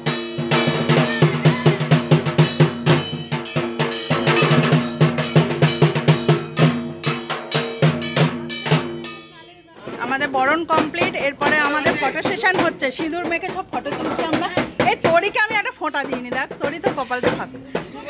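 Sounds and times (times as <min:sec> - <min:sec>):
ringing metallic clang: 0:00.0 - 0:12.6
fast even drumming: 0:00.0 - 0:18.0.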